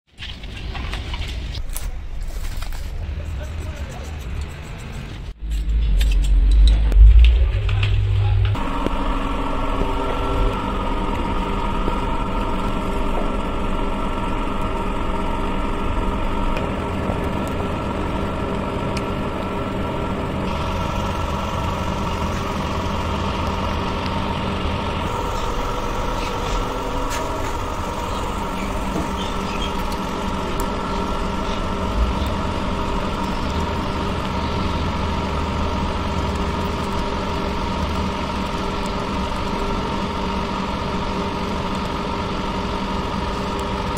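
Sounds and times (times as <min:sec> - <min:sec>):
loud low rumble: 0:05.3 - 0:39.7
heavy engine idling: 0:05.7 - 0:43.9.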